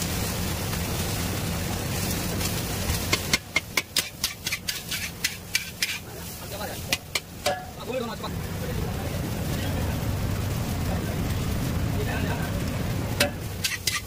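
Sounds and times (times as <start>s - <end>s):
gas burner roaring: 0.0s - 14.0s
metal ladle clanking on wok: 6.9s - 7.8s, 13.2s - 14.0s.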